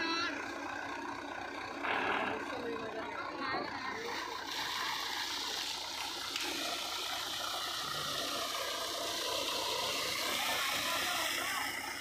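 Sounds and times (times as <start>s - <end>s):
engine running: 0.0s - 12.0s
water gushing and splashing: 4.0s - 12.0s.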